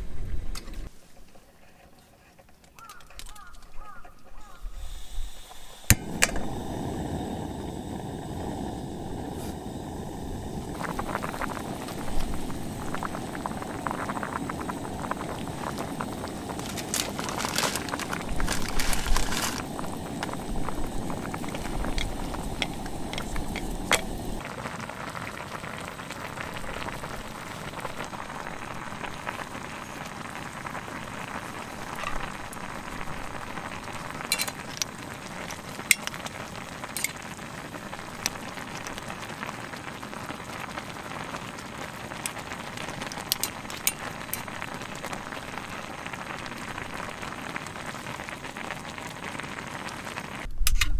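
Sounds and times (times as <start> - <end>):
sharp pops and clicks: 2.5 - 4.4, 5.9 - 6.5, 10.8 - 24.4, 33.9 - 37.4, 38.1 - 39.0, 42.2 - 45.3
broth boiling and bubbling: 3.2 - 50.8.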